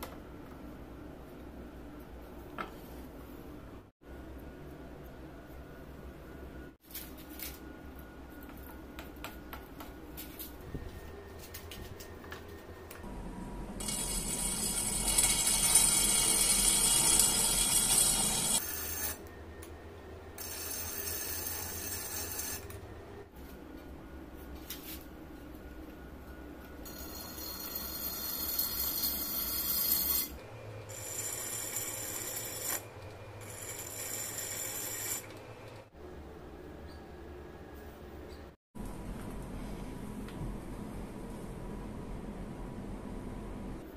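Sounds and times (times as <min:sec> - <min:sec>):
grinding wheel motor hum: 0:13.0 - 0:19.2
blade grinding ringing: 0:13.8 - 0:19.2, 0:26.8 - 0:32.8, 0:33.4 - 0:35.3.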